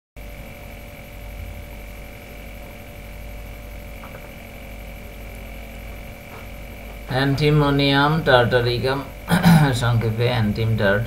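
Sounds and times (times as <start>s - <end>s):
electrical hum and hiss: 0.2s - 11.0s.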